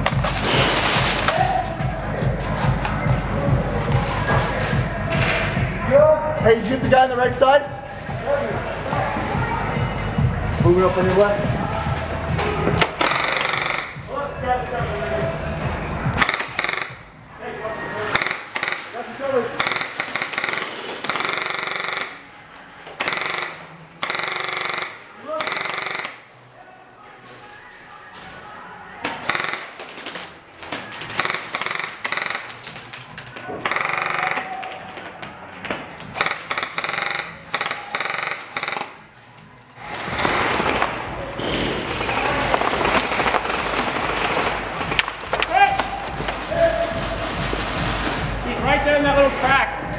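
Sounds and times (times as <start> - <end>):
dense continuous din: 0.0 - 49.9
airsoft rifles firing bursts: 12.8 - 14.1, 16.2 - 17.1, 18.1 - 22.3, 23.0 - 26.3, 29.1 - 32.9, 33.6 - 34.6, 36.0 - 39.1, 39.8 - 41.2, 41.9 - 45.2.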